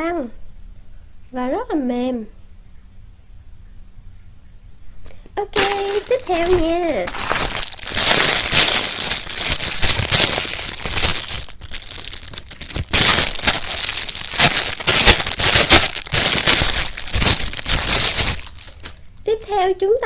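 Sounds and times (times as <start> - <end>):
plastic bag crinkling: 5.5 - 19.2.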